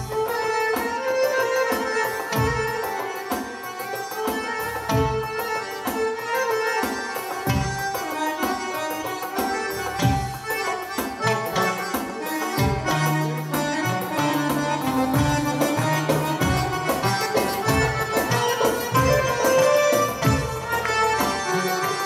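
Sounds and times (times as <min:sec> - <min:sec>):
hand-drum strokes: 0:00.0 - 0:22.0
melodic instruments playing: 0:04.6 - 0:22.0.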